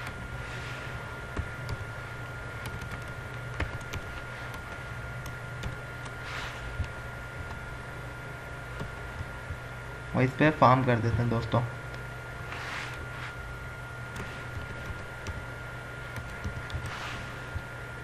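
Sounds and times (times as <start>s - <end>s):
electrical hum with high tone: 0.0s - 18.0s
keyboard typing: 2.6s - 6.2s, 8.7s - 9.6s, 14.1s - 15.5s, 16.1s - 17.7s.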